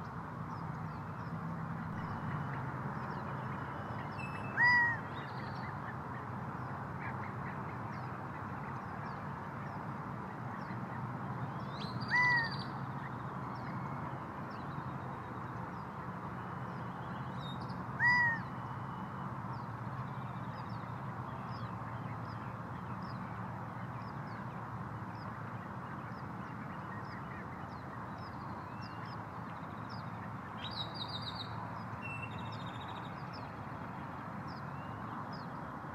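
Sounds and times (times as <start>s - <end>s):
small birds chirping: 0.0s - 35.6s
quail hooting calls: 4.0s - 5.2s, 12.1s - 12.5s, 18.0s - 18.5s.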